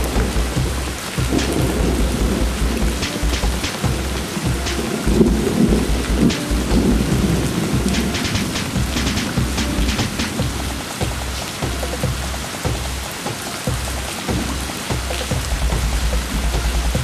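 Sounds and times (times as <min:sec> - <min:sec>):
low rumble: 0:00.0 - 0:11.3
heavy rain pouring: 0:00.0 - 0:17.0.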